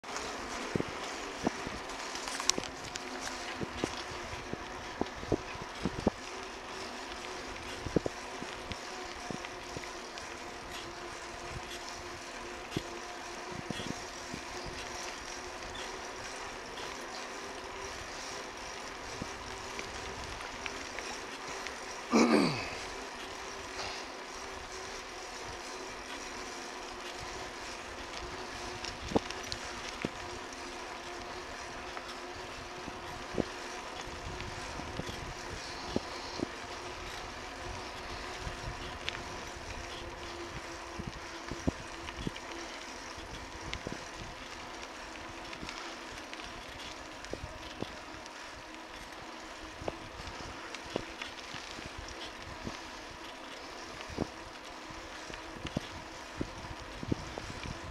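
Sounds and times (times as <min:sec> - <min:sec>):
bicycle tyres rolling on pavement: 0:00.0 - 0:57.9
wind noise: 0:00.5 - 0:06.3, 0:55.5 - 0:57.9.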